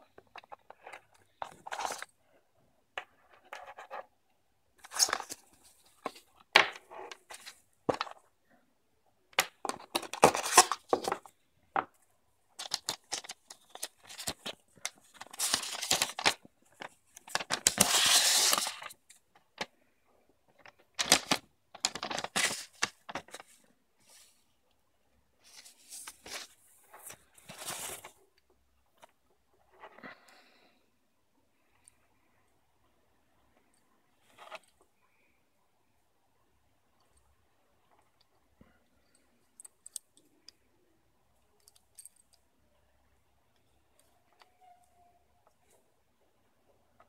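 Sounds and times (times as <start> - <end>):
paper wrapping rustling: 12.6 - 19.0, 21.0 - 23.6, 25.4 - 28.2.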